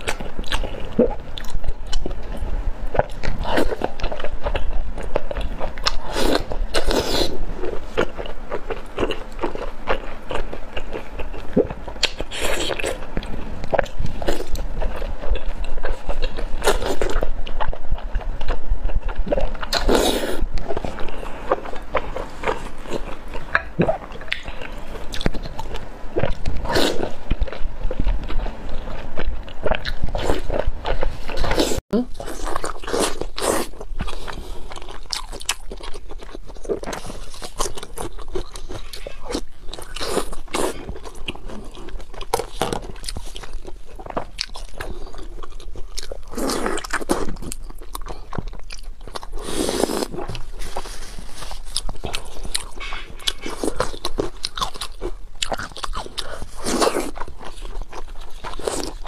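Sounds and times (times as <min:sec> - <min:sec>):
chewing and wet squelching: 0:00.0 - 0:59.0.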